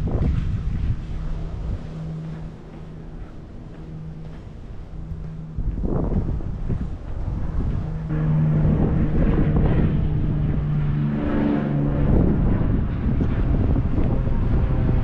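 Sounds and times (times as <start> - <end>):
engine humming: 0.0 - 15.0
wind buffeting microphone: 0.0 - 15.0.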